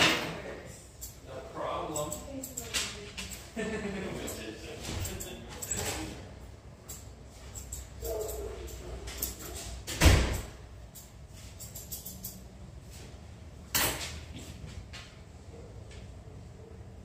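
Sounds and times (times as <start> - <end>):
scissors snipping fur: 2.0 - 2.7.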